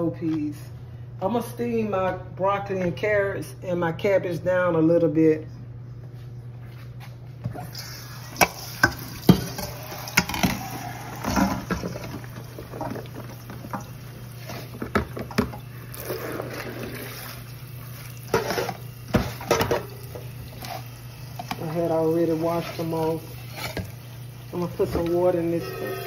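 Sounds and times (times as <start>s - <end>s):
tap water running: 7.5s - 26.0s
utensils clattering in metal sink: 7.8s - 15.6s, 18.2s - 23.9s.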